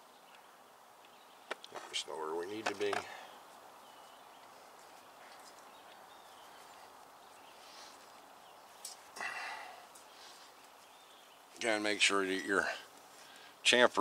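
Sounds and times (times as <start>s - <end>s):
faint bird chirps: 3.0s - 12.6s.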